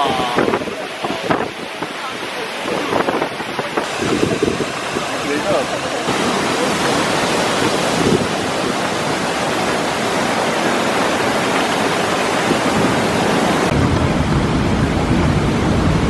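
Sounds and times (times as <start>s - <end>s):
waterfall rushing: 0.0s - 16.0s
deep rumble: 13.7s - 16.0s.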